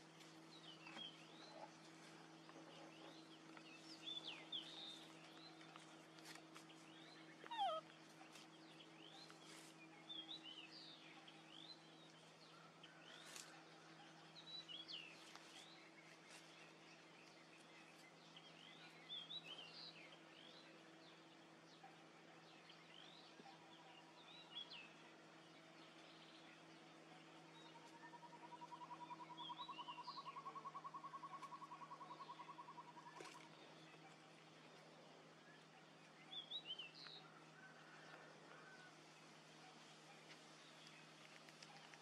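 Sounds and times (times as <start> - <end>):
low steady hum: 0.0 - 42.0
faint bird chirps: 6.7 - 16.6, 26.5 - 38.8.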